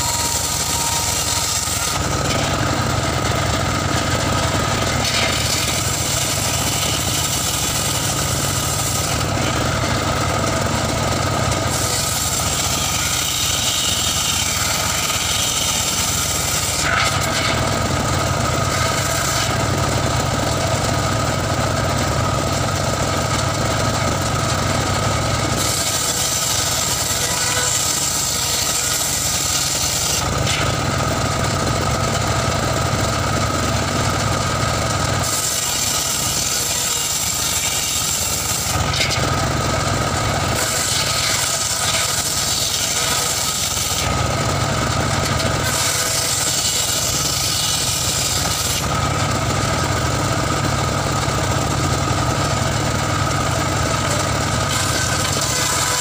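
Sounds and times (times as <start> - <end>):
saw machine humming: 0.0 - 56.0.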